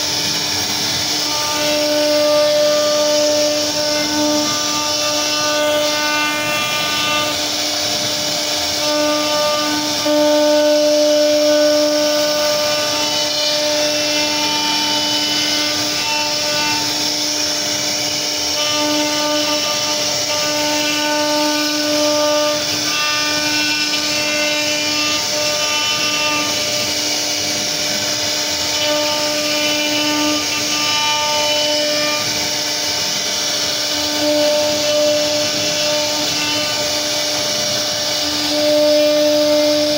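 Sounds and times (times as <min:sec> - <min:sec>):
router spindle whine: 0:00.0 - 0:39.9.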